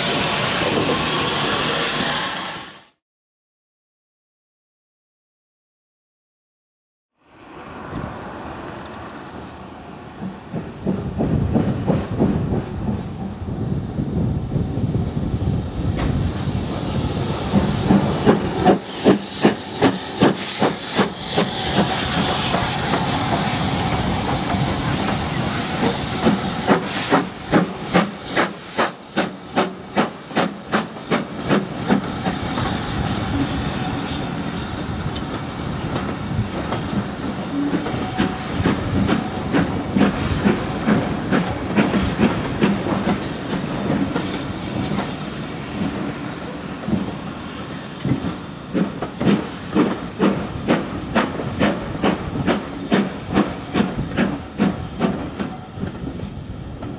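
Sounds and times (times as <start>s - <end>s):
train coaches rumbling past: 0.0s - 3.0s, 7.3s - 56.9s
steam hissing: 15.8s - 55.8s
steam locomotive exhaust chuffing: 16.1s - 45.2s, 47.9s - 55.5s
train wheel clicks: 35.1s - 45.1s, 47.9s - 56.0s.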